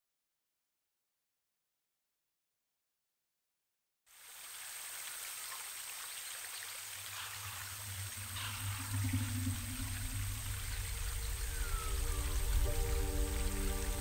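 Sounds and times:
rushing hiss of water: 4.1 - 14.0
low hum: 7.3 - 14.0.

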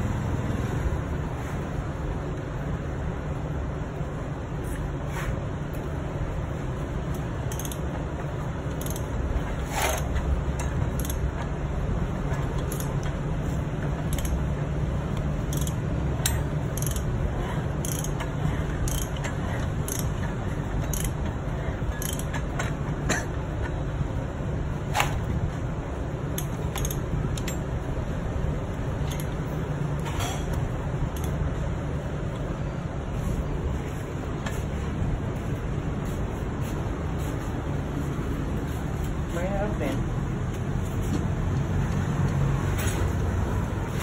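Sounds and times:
low background hum: 0.0 - 44.0
metallic clicks and scrapes: 7.0 - 11.6, 12.2 - 23.8, 26.3 - 27.8, 28.9 - 31.6.

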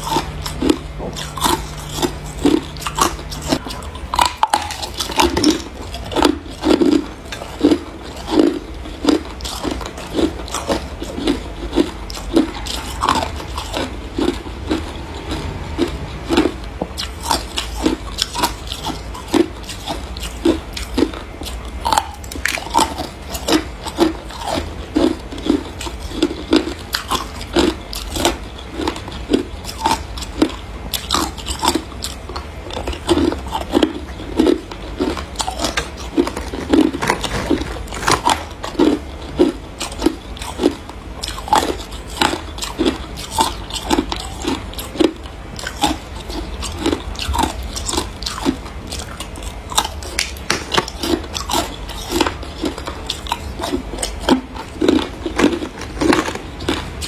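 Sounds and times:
person crunching ice: 33.1 - 56.9.

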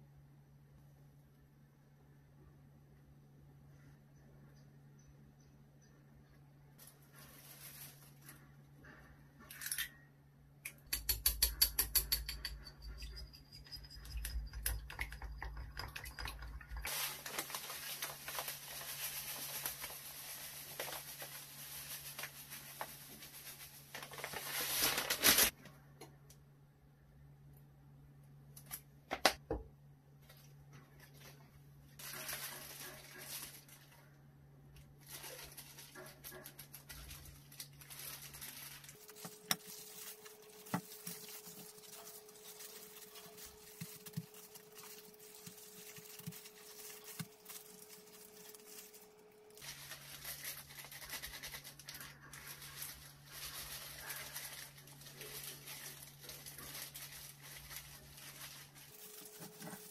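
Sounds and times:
plastic gloves crinkling: 6.7 - 9.0, 15.4 - 25.6, 30.2 - 59.9.

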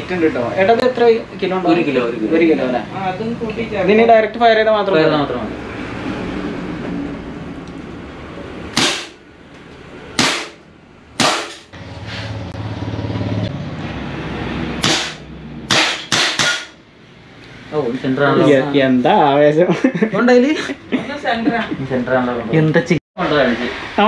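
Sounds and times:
air pistol shots: 8.7 - 9.2, 10.2 - 10.6, 11.2 - 11.7, 14.8 - 16.8.

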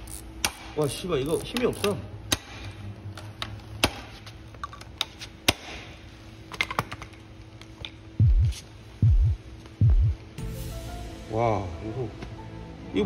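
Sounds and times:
loud low double thump: 8.2 - 10.2.

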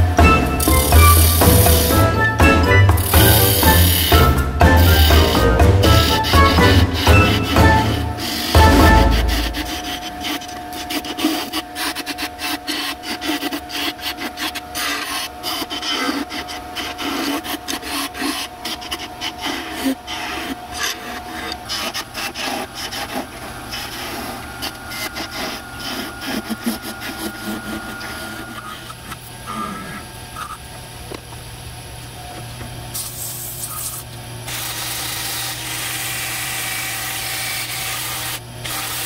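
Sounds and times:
tool scraping spinning wood: 0.0 - 30.6
lathe humming: 0.0 - 32.5, 34.1 - 39.0.

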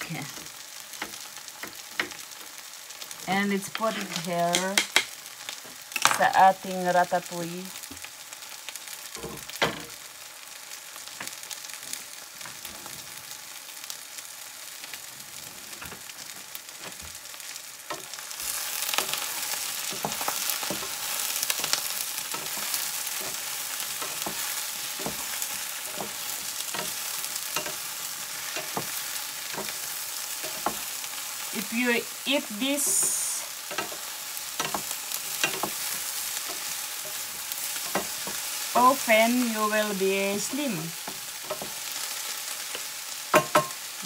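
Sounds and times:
vegetables sizzling in a frying pan: 0.0 - 44.0.

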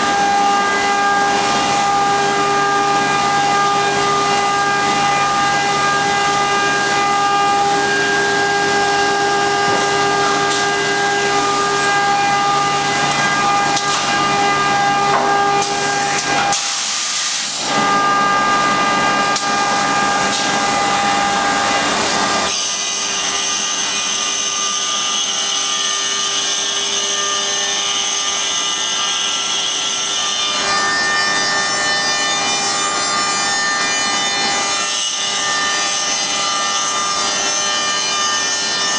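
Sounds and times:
woodworking machine whine: 0.0 - 38.9.

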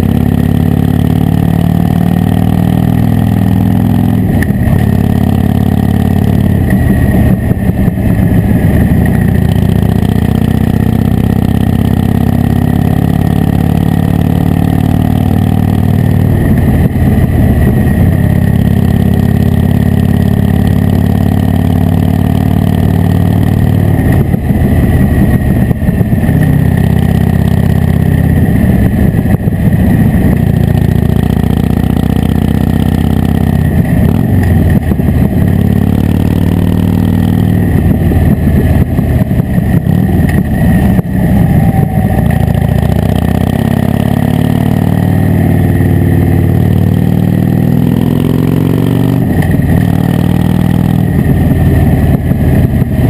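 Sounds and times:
motorcycle engine revving while riding: 0.0 - 53.0.

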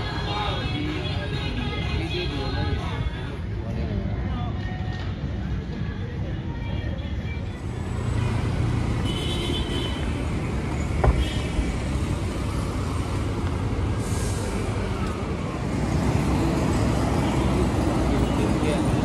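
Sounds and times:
cars and motorcycles passing: 7.2 - 19.0.

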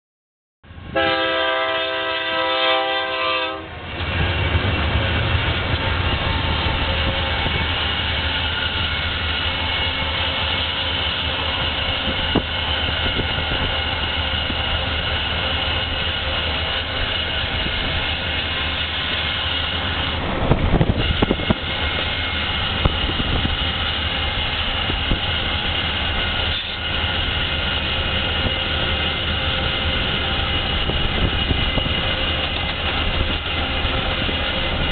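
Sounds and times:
locomotive engine and wheels rumbling: 0.6 - 34.9
locomotive horn: 0.9 - 3.9.

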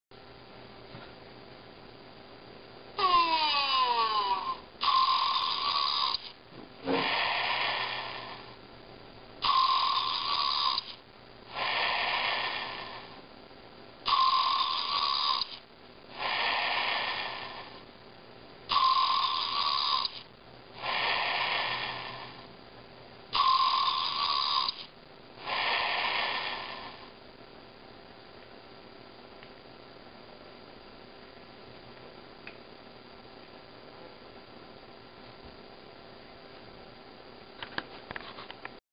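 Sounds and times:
breathy hiss: 3.0 - 8.6, 9.4 - 13.3, 14.0 - 17.9, 18.7 - 22.6, 23.3 - 27.2
electronic toy snoring: 3.0 - 8.6, 9.4 - 13.2, 14.0 - 17.9, 18.7 - 22.5, 23.3 - 27.2.

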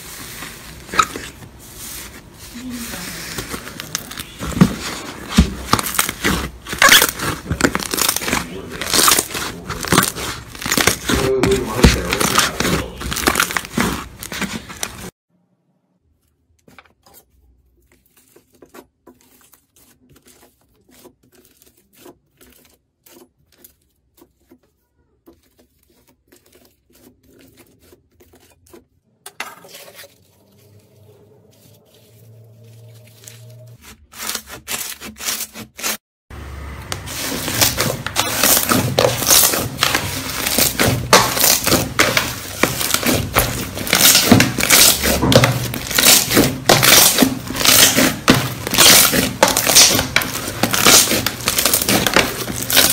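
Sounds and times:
knife cutting crumbly block: 0.8 - 15.1, 17.0 - 29.0, 33.1 - 36.0, 37.0 - 52.9
slime crackling and popping: 5.6 - 15.1, 37.5 - 52.9.

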